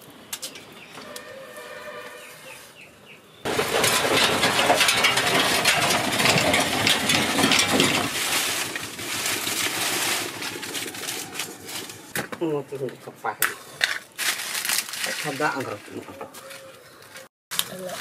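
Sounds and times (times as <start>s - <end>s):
vehicle rattling past: 3.5s - 12.2s.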